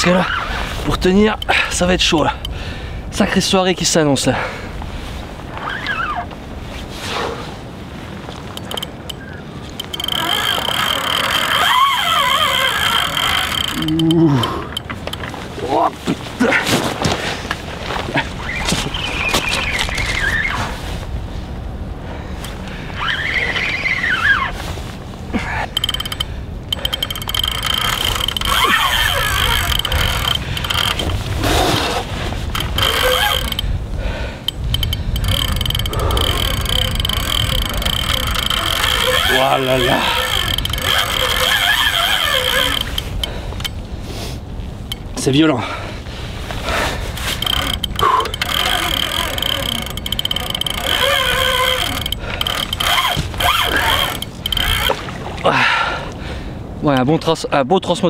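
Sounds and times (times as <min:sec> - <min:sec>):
low wind rumble: 0:00.0 - 0:58.0
ratcheting clicks: 0:08.5 - 0:15.4, 0:25.7 - 0:31.3, 0:32.4 - 0:33.8, 0:34.4 - 0:43.8, 0:44.8 - 0:45.1, 0:47.1 - 0:55.0
fishing reel drag whine: 0:08.6 - 0:15.2, 0:23.0 - 0:24.6, 0:25.7 - 0:31.3, 0:32.5 - 0:33.7, 0:34.4 - 0:43.8, 0:47.2 - 0:55.0.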